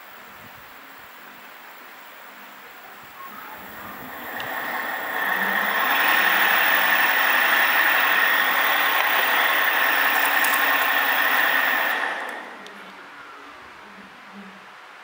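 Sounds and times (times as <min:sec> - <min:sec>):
electric motors whirring and whining: 0:03.3 - 0:13.0.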